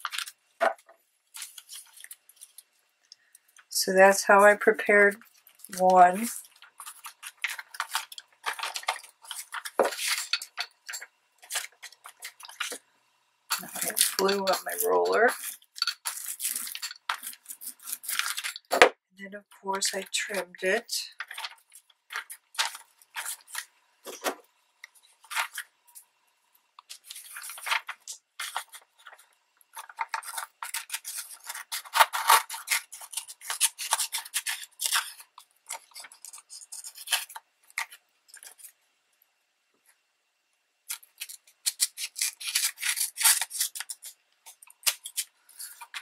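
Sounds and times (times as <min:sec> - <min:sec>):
paper rustling: 0:01.3 - 0:02.6, 0:05.1 - 0:12.8, 0:21.2 - 0:25.7, 0:26.9 - 0:38.7
scissors cutting paper: 0:13.5 - 0:18.7, 0:26.8 - 0:38.7, 0:40.9 - 0:46.0.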